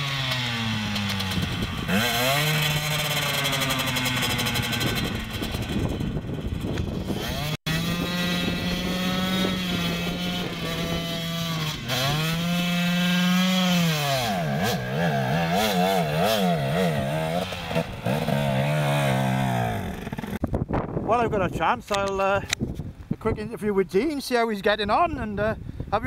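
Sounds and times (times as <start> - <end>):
motorcycle engine revving: 0.0 - 20.5.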